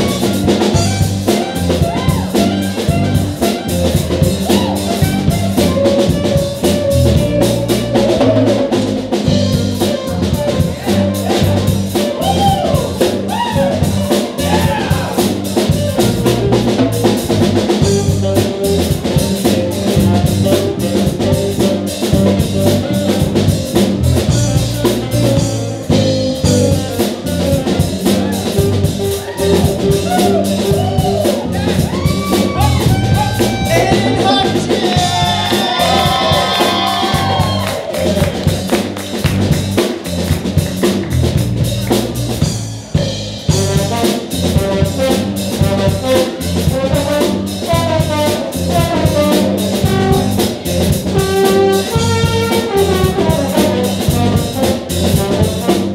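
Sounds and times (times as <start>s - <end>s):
saxophones: 0.0s - 38.8s
bass guitar: 0.0s - 55.9s
drum kit: 0.0s - 55.9s
trombones: 0.0s - 55.9s.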